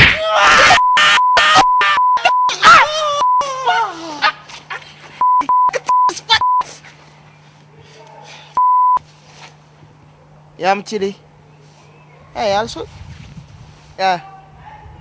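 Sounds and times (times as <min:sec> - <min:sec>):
person shouting: 0:00.0 - 0:04.4
censor bleeps: 0:00.8 - 0:02.6, 0:05.2 - 0:06.6, 0:08.6 - 0:09.0.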